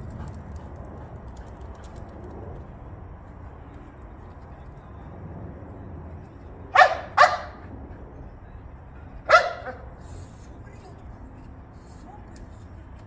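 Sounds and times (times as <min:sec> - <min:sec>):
dog barking: 0:06.8 - 0:07.7, 0:09.3 - 0:09.9.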